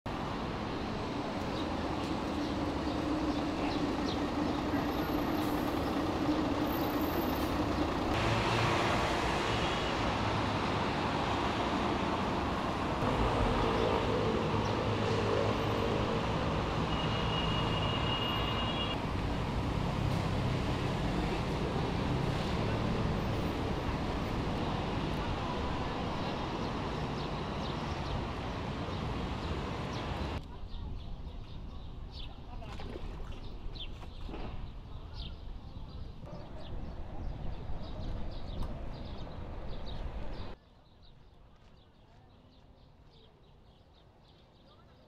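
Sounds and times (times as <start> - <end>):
road traffic rumble: 0.1 - 31.0, 33.8 - 40.6.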